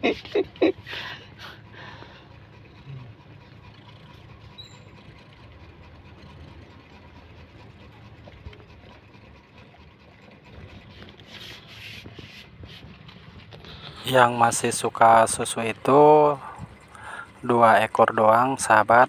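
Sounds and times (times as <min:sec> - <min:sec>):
low motor hum: 0:00.0 - 0:19.0.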